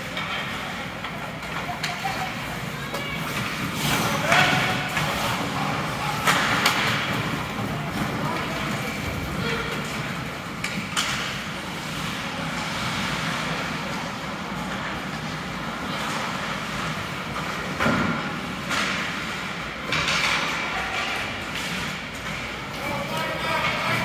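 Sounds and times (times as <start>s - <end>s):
puck hitting boards: 6.2s - 8.1s.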